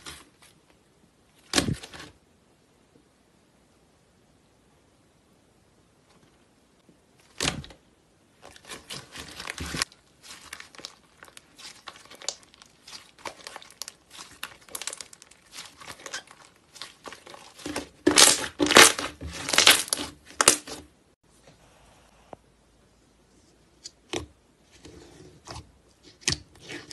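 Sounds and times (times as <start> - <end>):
slime crackling and tearing: 8.5 - 20.8.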